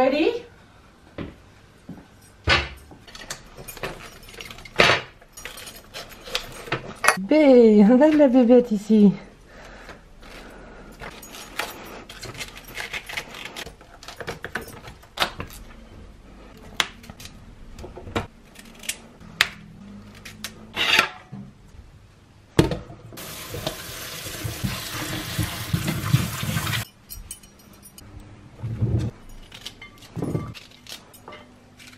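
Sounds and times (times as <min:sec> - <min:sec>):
tap running water: 0:23.2 - 0:26.8.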